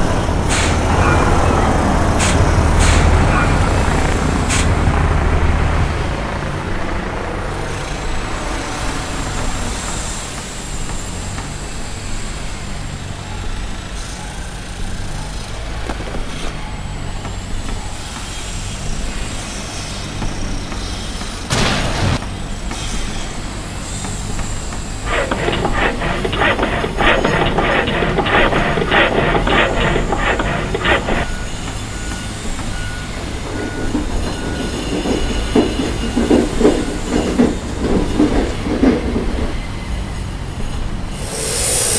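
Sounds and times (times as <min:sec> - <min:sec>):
diesel engine running: 0:00.0 - 0:41.9
burst of noise: 0:21.5 - 0:22.4, 0:41.0 - 0:41.9
handsaw cutting timber: 0:25.0 - 0:31.3.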